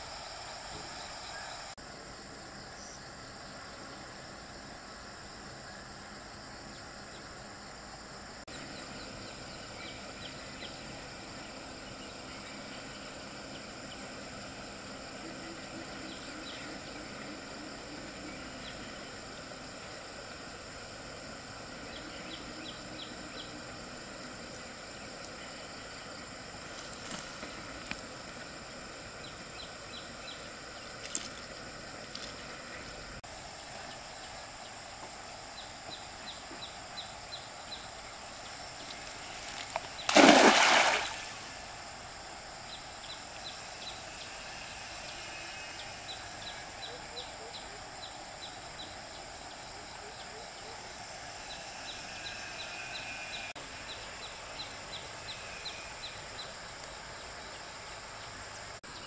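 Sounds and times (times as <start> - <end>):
faint high-pitched outdoor noise: 0.0 - 59.0
stream water running: 9.4 - 46.7
small ticks: 30.7 - 32.6
loud water splash: 40.1 - 41.6.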